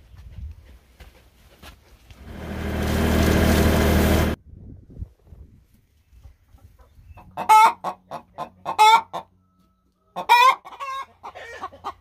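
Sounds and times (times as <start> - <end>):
hens clucking: 6.2 - 9.3, 10.0 - 12.0.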